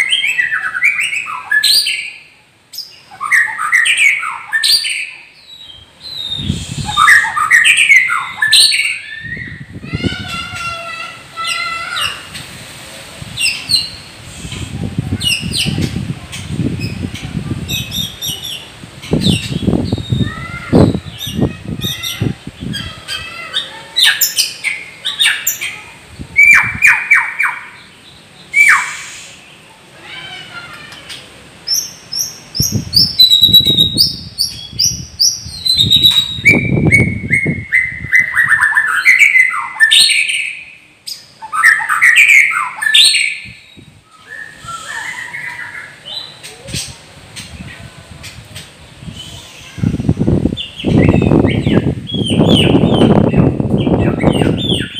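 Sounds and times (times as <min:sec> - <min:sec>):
bird singing: 0:00.0 - 0:09.8, 0:30.9 - 0:46.7, 0:50.5 - 0:54.9.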